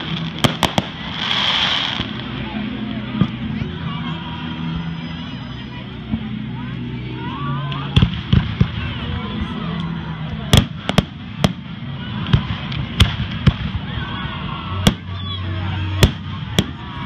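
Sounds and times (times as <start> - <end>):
fireworks bursting: 0.0 - 3.5, 7.9 - 9.4, 10.4 - 14.1, 14.8 - 17.0
crowd chatter: 0.0 - 17.0.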